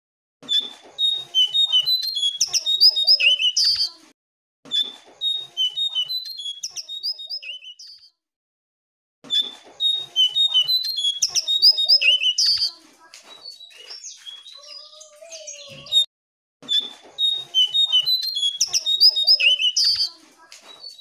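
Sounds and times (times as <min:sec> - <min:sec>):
bird singing whistled trills: 0:01.0 - 0:03.9, 0:05.2 - 0:08.1, 0:09.8 - 0:16.1, 0:16.7 - 0:21.0.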